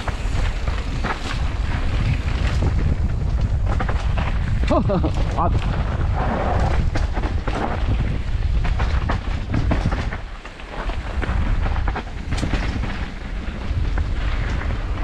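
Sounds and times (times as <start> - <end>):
wind buffeting microphone: 0.0 - 15.0
scattered clicks and knocks: 6.8 - 14.7.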